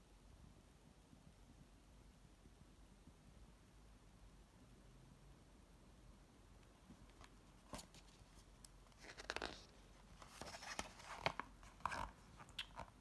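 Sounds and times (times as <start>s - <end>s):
soft paper rustle: 6.9s - 13.0s.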